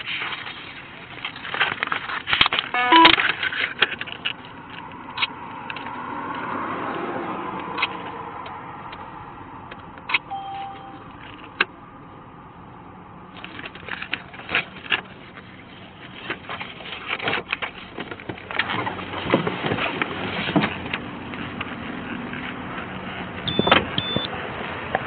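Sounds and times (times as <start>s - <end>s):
short beep: 2.7s - 3.2s, 10.3s - 11.1s, 23.5s - 24.3s.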